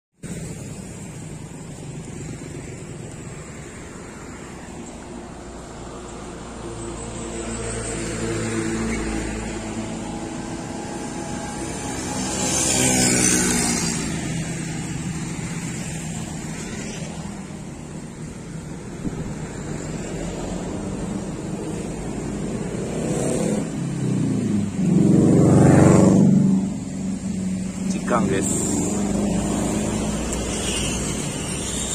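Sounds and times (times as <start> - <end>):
vehicle passing by: 0.2 - 31.9.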